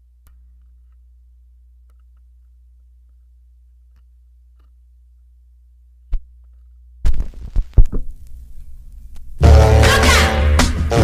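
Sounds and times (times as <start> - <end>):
record changer hum: 0.0 - 11.0
record changer clunks and thumps: 7.0 - 8.2.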